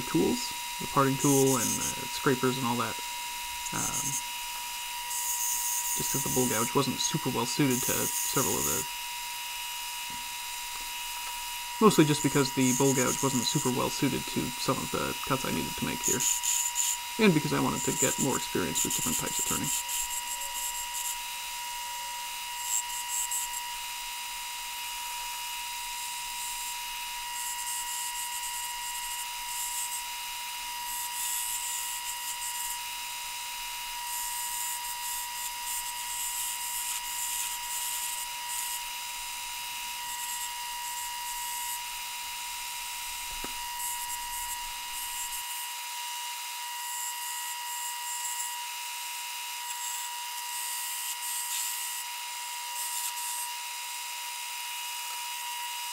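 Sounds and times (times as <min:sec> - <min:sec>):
lathe motor whine: 0:00.0 - 0:54.1
turning tool scraping wood: 0:00.1 - 0:08.9, 0:11.8 - 0:21.2.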